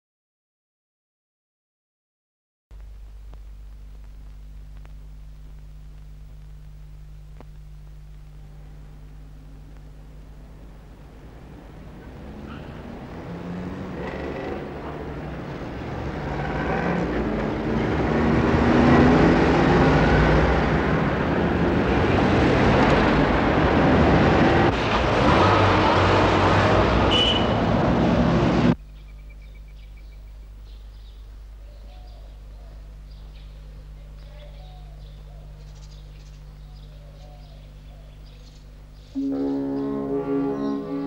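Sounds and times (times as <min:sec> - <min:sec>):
loud rushing roar: 0:10.5 - 0:28.8, 0:39.2 - 0:41.0.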